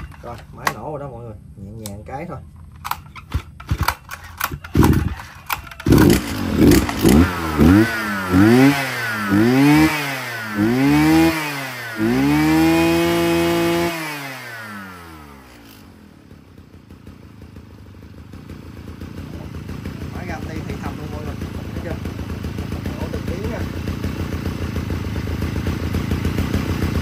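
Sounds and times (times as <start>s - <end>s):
brush cutter engine revving: 2.8s - 27.0s.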